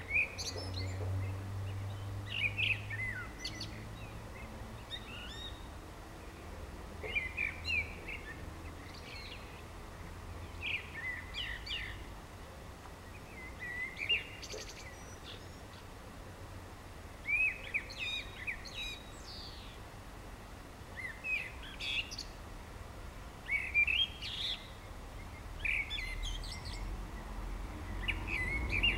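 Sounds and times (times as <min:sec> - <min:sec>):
blackbird singing: 0:00.0 - 0:05.7, 0:07.0 - 0:09.6, 0:10.4 - 0:12.1, 0:13.0 - 0:15.9, 0:17.2 - 0:19.8, 0:21.0 - 0:22.4, 0:23.5 - 0:26.9, 0:27.9 - 0:28.9.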